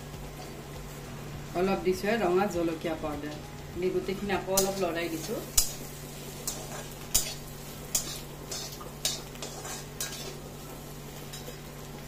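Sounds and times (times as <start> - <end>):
steady low hum: 0.0 - 12.0
spatula scraping a pan: 6.4 - 10.4.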